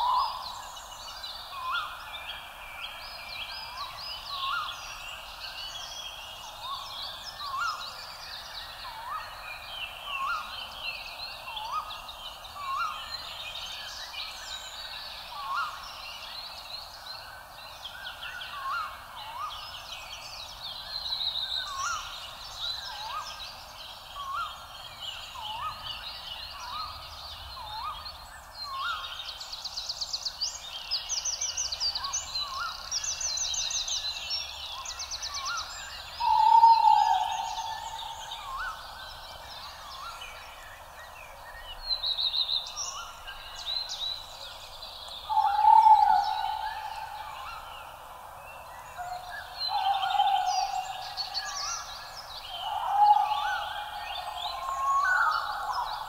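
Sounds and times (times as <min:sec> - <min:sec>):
birds chirping and trilling: 0:30.4 - 0:56.0.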